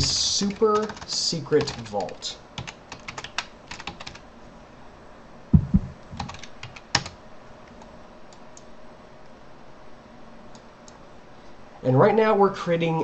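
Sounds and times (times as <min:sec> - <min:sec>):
computer keyboard keystrokes: 0:00.5 - 0:04.2, 0:06.2 - 0:08.7
dull low thumps: 0:05.5 - 0:06.3.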